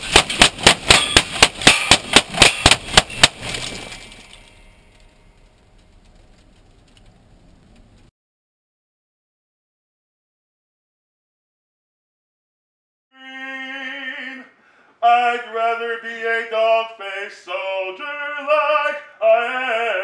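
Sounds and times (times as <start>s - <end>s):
rapid gunfire: 0.0s - 3.6s
glass cracking and breaking: 0.2s - 7.2s.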